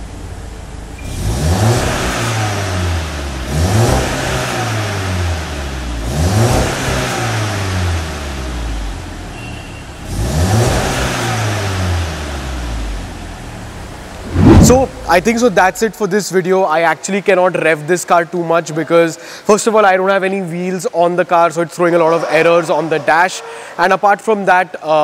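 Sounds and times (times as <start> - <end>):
car engine revving: 1.0 - 8.8, 10.0 - 15.9.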